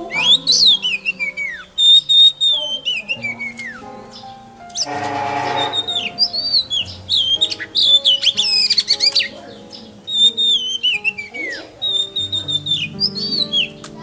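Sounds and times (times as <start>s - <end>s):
background music: 0.0s - 14.0s
songbird singing: 0.0s - 14.0s.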